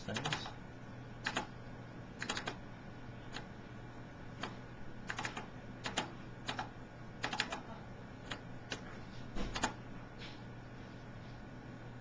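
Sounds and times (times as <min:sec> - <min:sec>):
computer mouse clicks: 0:02.2 - 0:02.6.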